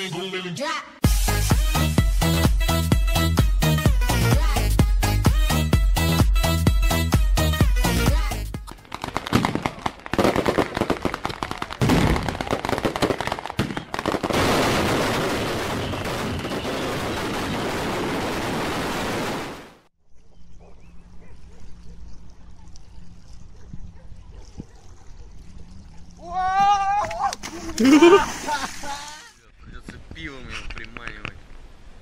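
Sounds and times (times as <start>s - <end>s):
fireworks bangs and crackles: 8.7s - 19.9s
faint outdoor background: 19.8s - 32.0s.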